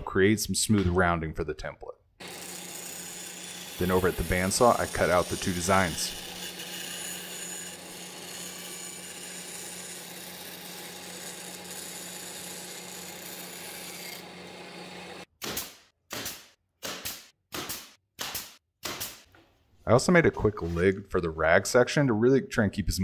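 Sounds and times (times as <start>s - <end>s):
bandsaw cutting wood: 2.2s - 15.3s
nail gun firing: 15.4s - 19.3s.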